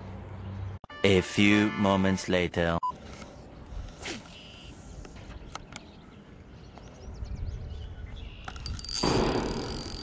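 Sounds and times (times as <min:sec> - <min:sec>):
faint bird chirps: 0:04.3 - 0:08.7.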